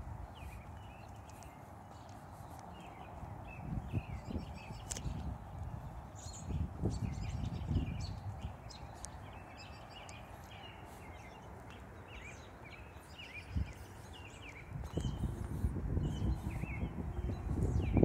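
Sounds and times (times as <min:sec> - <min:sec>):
birds chirping: 0:00.0 - 0:18.0
steady outdoor hiss: 0:07.2 - 0:16.8.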